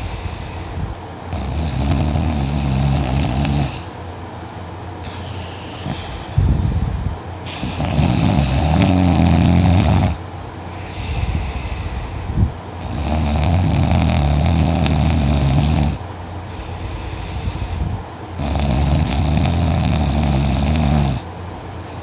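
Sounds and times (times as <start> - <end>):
woman snoring loudly: 0.0 - 3.9, 7.5 - 10.2, 12.8 - 16.0, 18.4 - 21.2.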